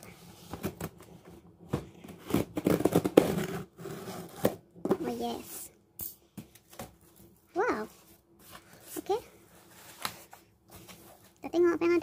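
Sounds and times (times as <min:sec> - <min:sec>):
tape and cardboard tearing: 0:02.2 - 0:04.6.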